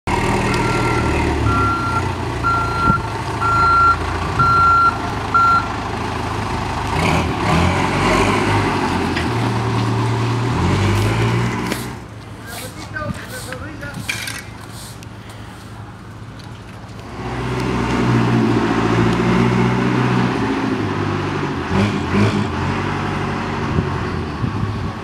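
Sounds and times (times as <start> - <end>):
diesel engine running: 0.1 - 25.0
reversing alarm beeping: 0.4 - 5.7.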